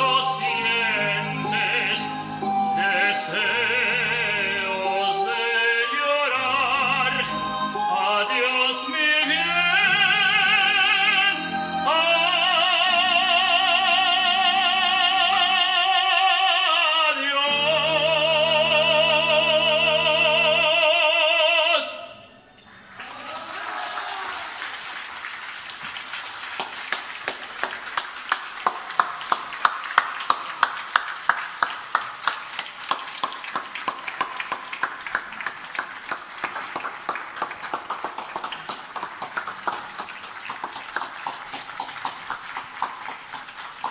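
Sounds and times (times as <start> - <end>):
sustained backing chords: 0.0 - 14.8
man singing with vibrato: 0.0 - 22.4.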